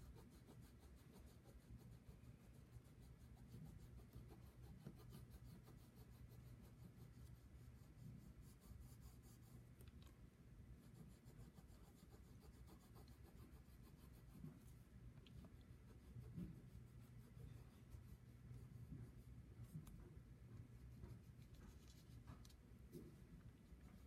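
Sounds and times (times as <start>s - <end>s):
crayon scratching on paper: 0.0s - 9.6s, 10.8s - 20.0s.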